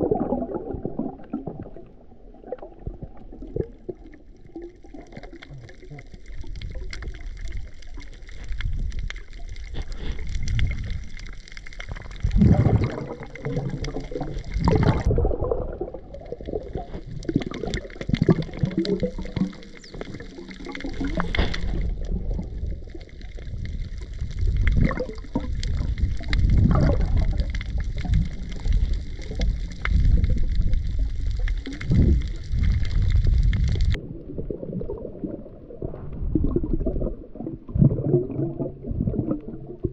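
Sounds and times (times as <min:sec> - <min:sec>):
underwater gurgling and sloshing: 0:00.0 - 0:39.9
brief crackles: 0:21.1 - 0:21.9.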